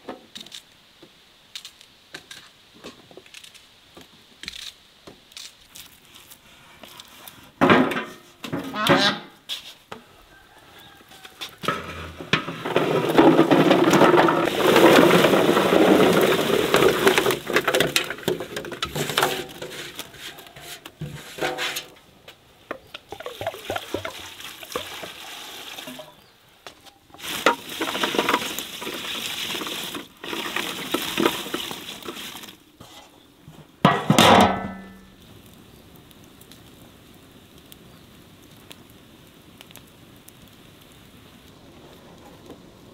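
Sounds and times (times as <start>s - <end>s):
clatter and knocks: 11.6s - 19.7s, 27.2s - 32.5s
water splashing and sloshing: 11.8s - 21.8s, 22.7s - 26.2s, 27.1s - 32.6s.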